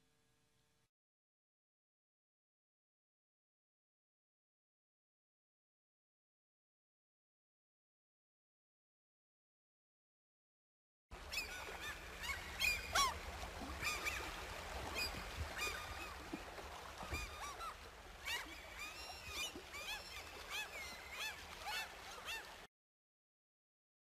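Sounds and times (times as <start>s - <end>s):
waterfowl calling: 11.2s - 22.7s.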